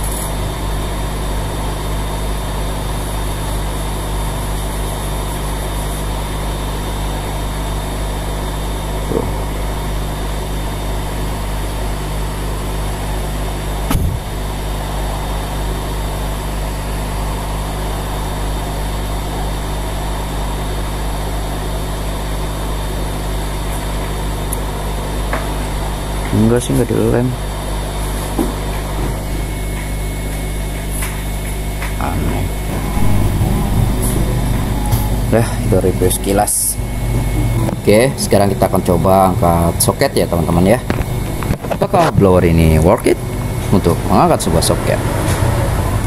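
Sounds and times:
short knock: 0:13.9 - 0:14.3
blower fan hum: 0:32.0 - 0:46.0.

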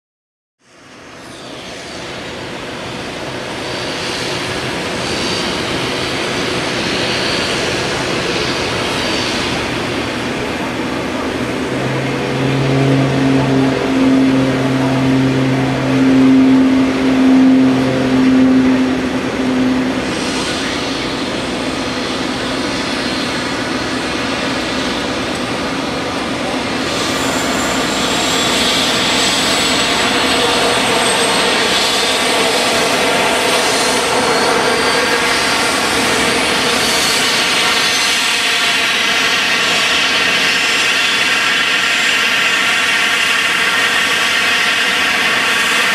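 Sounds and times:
high engine whine: 0:00.6 - 0:45.9
jet engine rumble: 0:00.8 - 0:45.9
low two-tone hum: 0:09.2 - 0:38.9.

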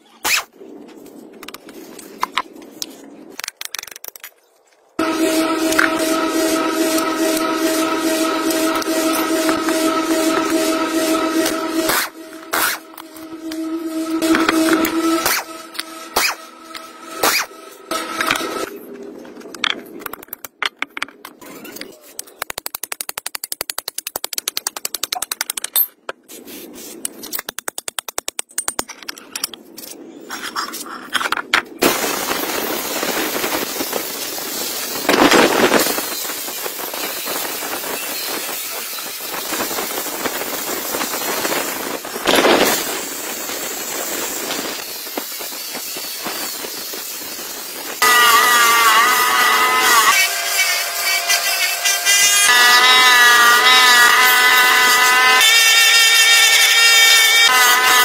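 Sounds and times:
wire brush grinder scrubbing metal: 0:05.0 - 0:18.7, 0:33.2 - 0:58.0.

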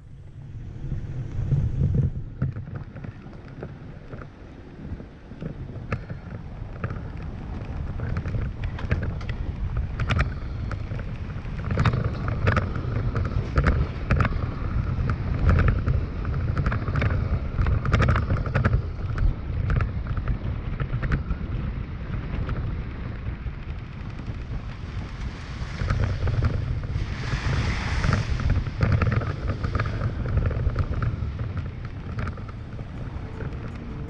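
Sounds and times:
tyres rumbling on dirt trail: 0:00.0 - 0:34.0
sharp clicks and knocks: 0:05.4 - 0:21.4, 0:23.6 - 0:34.0.

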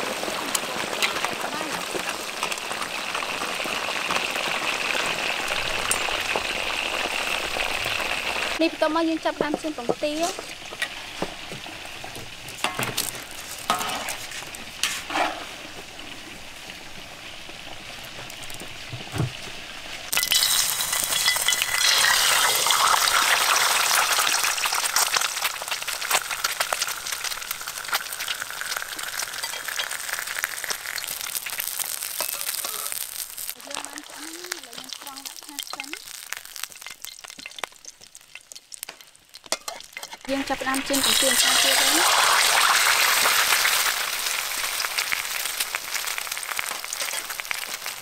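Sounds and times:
egg sizzling in hot oil: 0:00.0 - 0:48.0
quiet crackle: 0:24.0 - 0:40.3.

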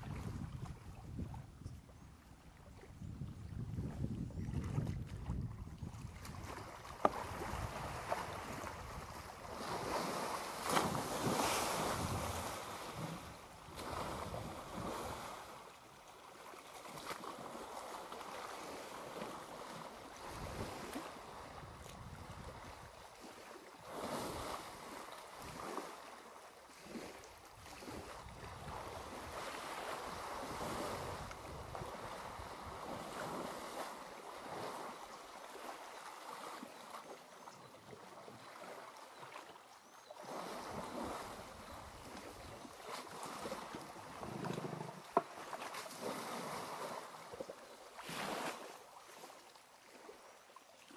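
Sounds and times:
wind rumbling on microphone: 0:00.0 - 0:15.4, 0:20.2 - 0:23.0, 0:27.6 - 0:33.8
water splashing and sloshing: 0:00.0 - 0:50.9.

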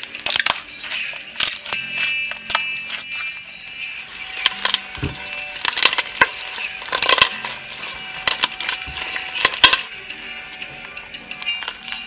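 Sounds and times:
crunchy slime clicks and crackles: 0:00.2 - 0:00.7, 0:01.3 - 0:02.7, 0:04.4 - 0:09.9.

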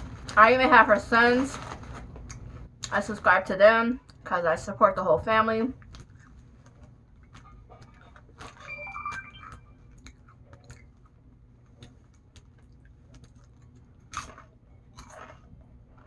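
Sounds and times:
chips being chewed crunching: 0:05.8 - 0:08.6, 0:09.9 - 0:16.0.

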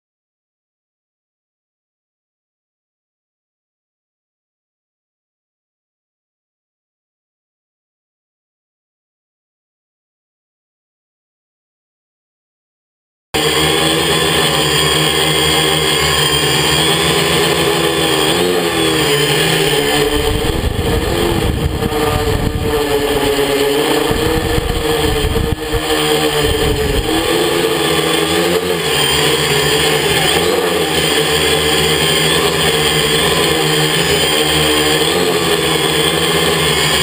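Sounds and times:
drone propellers buzzing: 0:13.4 - 0:37.0
wind rumble on microphone: 0:20.0 - 0:27.3.

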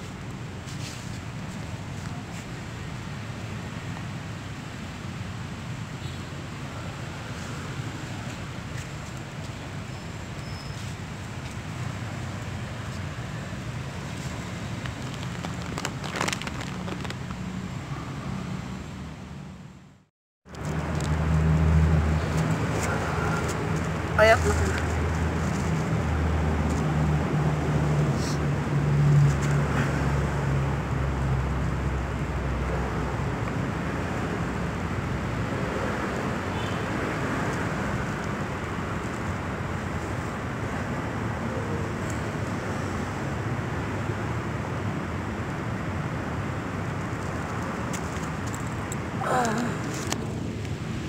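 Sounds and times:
low street rumble: 0:00.0 - 0:51.0
plastic bag crinkling: 0:14.7 - 0:17.4.

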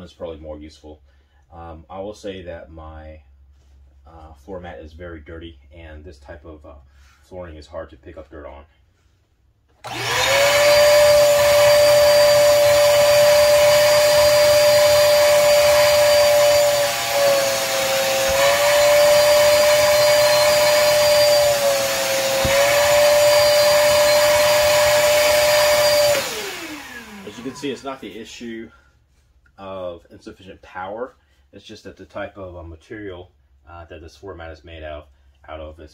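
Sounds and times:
shop vacuum motor whining: 0:09.8 - 0:28.2
vacuum nozzle on carpet mat: 0:09.8 - 0:28.2.

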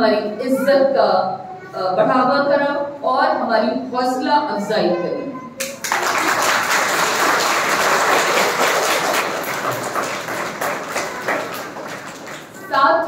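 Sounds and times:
crowd applauding: 0:05.6 - 0:12.7.

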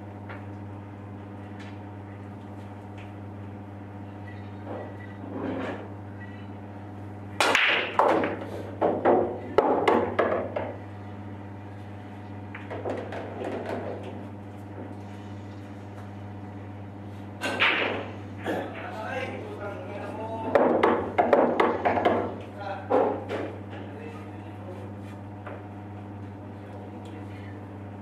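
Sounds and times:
steady low hum: 0:00.0 - 0:28.0
cue ball cracking into rack: 0:07.4 - 0:10.8, 0:17.4 - 0:18.9
pool balls clacking: 0:07.4 - 0:10.8, 0:12.5 - 0:14.3, 0:20.4 - 0:23.8.

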